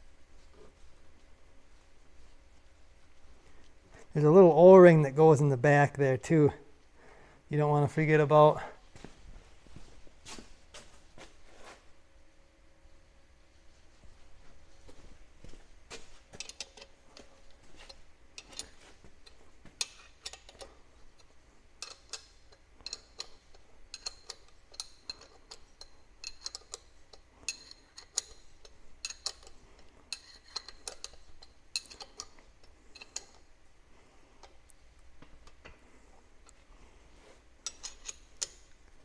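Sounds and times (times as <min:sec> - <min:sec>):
hand ratchet clicking: 0:18.4 - 0:33.4, 0:37.6 - 0:38.8.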